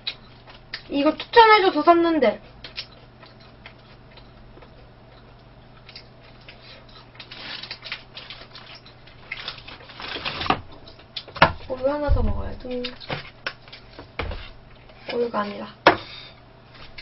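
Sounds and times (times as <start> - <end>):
mouth clicks of eating: 2.5 - 8.0
paper wrapper crinkling: 7.2 - 10.5.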